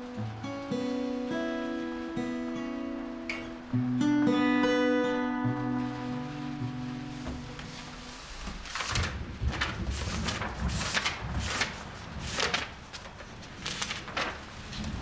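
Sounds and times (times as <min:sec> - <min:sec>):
plucked acoustic guitar notes: 0:00.0 - 0:08.1.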